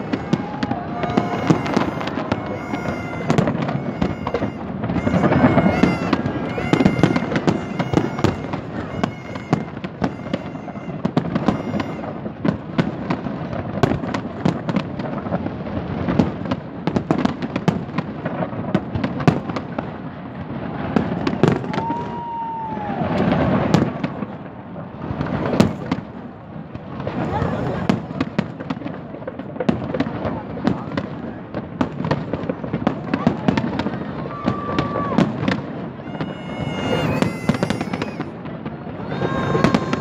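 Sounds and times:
firework whistle: 0.0 - 14.0, 33.8 - 40.0
fireworks bangs and crackles: 0.0 - 40.0.

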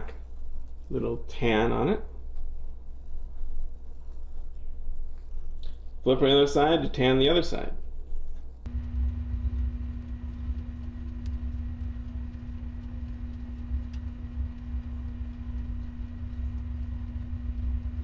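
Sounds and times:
constant hum: 7.9 - 18.0
gas burner rumbling: 8.7 - 18.0.

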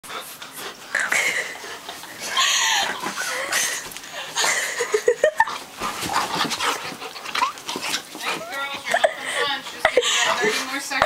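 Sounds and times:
woman laughing: 2.2 - 5.6, 8.4 - 11.0
scuffling on bedding: 5.6 - 7.1.

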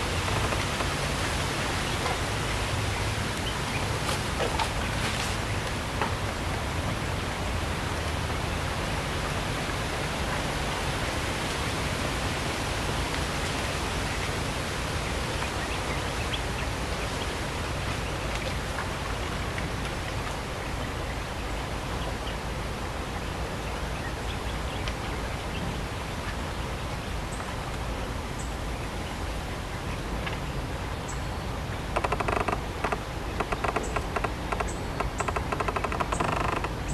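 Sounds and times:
forest ambience hiss: 0.0 - 36.9
faint bird calls: 31.0 - 36.9.

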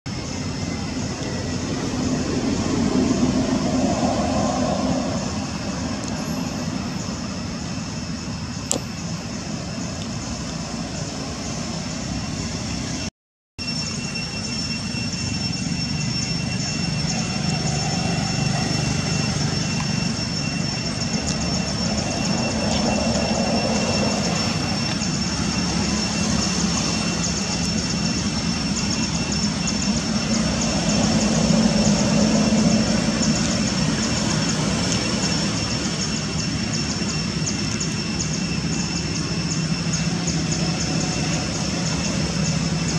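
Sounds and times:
high-pitched whine: 0.1 - 42.9.

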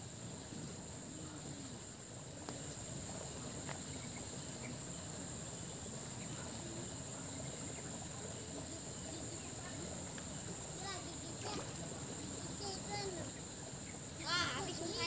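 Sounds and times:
insects chirring: 0.0 - 15.0
faint click: 2.4 - 2.8.

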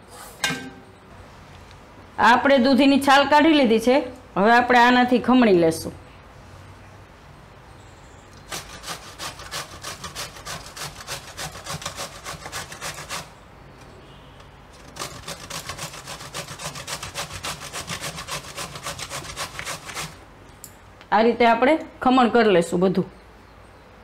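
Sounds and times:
gourd rasping on a metal grater: 8.4 - 13.3, 14.7 - 20.2.

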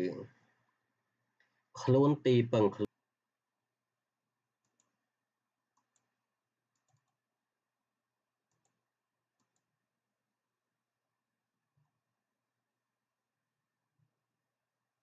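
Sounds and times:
faint computer mouse clicks: 4.6 - 5.0, 5.7 - 6.1, 6.7 - 7.2, 8.5 - 8.8, 9.4 - 9.7.

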